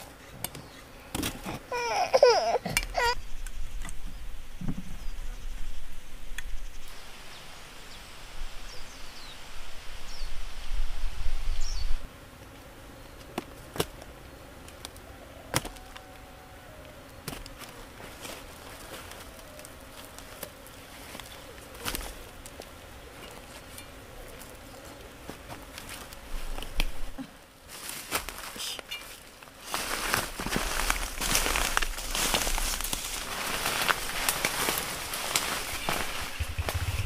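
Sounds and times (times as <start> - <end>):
gusty low rumble: 36.1 - 37.0.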